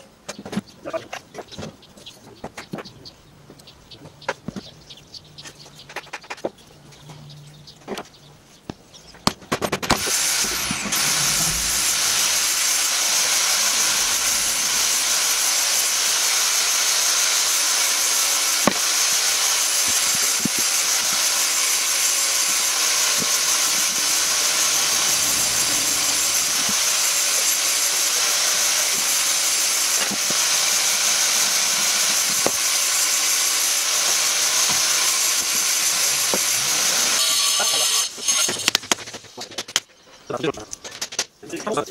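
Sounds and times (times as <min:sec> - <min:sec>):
loud steady hiss: 0:09.9 - 0:38.8.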